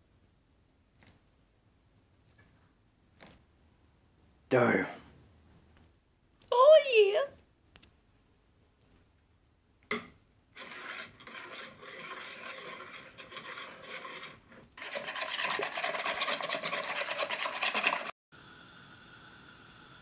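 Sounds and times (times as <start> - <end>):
whisk scraping bowl: 10.6 - 18.2.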